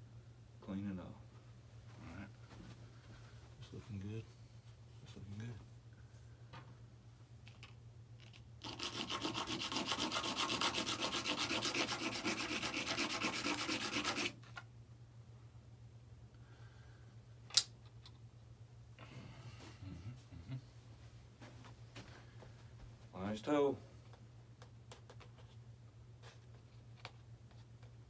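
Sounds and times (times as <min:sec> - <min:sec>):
rapid rubbing on a surface: 0:08.6 - 0:14.4.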